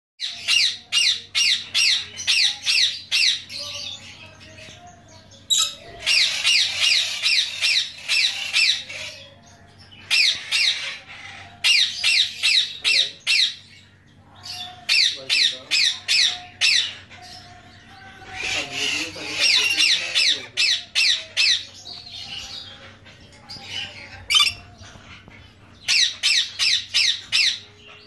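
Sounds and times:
soft bird chattering: 0:05.3 - 0:09.4, 0:18.2 - 0:28.0
parrot screeching: 0:24.2 - 0:24.8.

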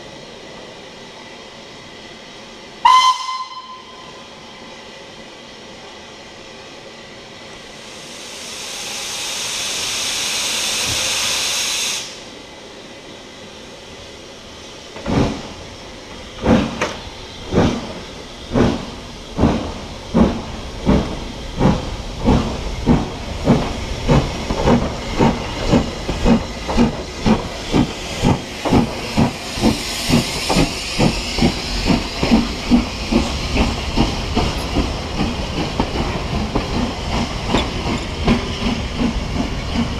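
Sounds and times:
loud hiss of steam: 0:00.0 - 0:39.9
steam locomotive exhaust beats: 0:15.0 - 0:39.9.

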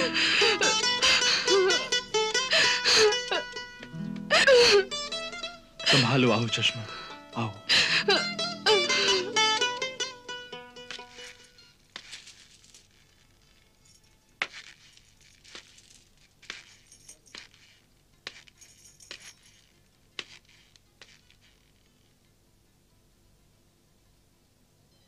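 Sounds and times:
jewelry clinking: 0:10.8 - 0:22.2.

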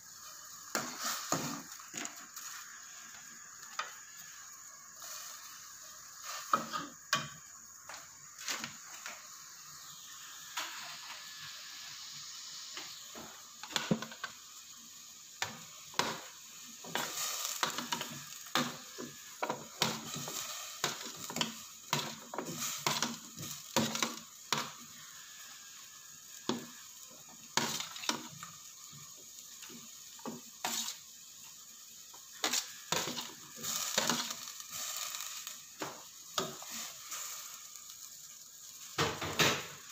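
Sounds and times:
faint steady hiss: 0:00.0 - 0:39.9.

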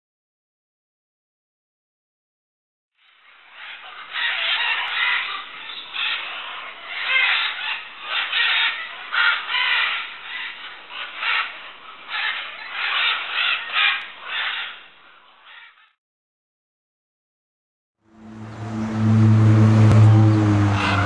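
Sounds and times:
flock of macaws squawking: 0:03.1 - 0:16.0, 0:18.3 - 0:21.0.

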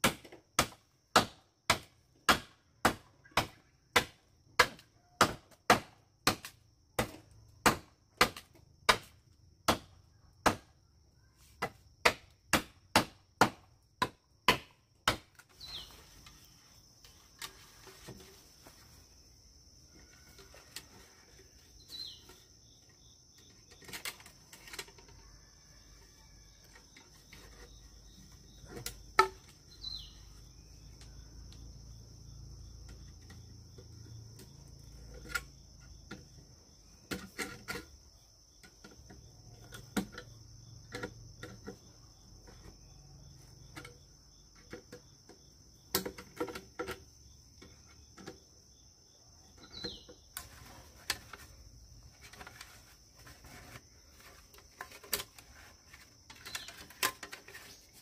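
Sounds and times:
high insect drone: 0:15.5 - 0:58.0.

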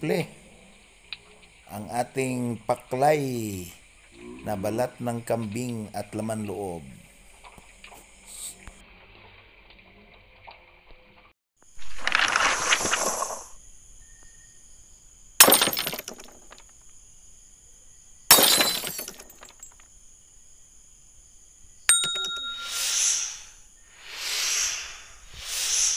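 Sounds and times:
shattering crashes: 0:15.4 - 0:16.6, 0:18.3 - 0:19.7
faint high whine: 0:20.0 - 0:25.9
sharp click with ring: 0:21.9 - 0:23.1
whoosh: 0:24.0 - 0:25.9.

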